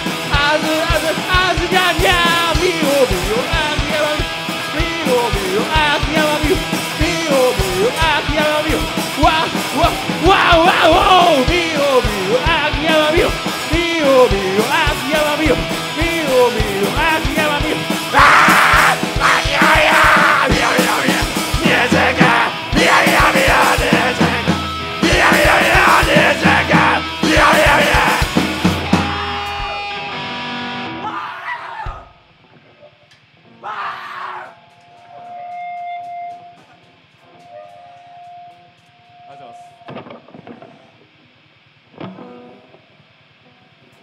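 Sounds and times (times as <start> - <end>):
rock band playing live: 0.0 - 31.1
person singing: 0.3 - 28.7
kick drum beat: 15.6 - 29.0.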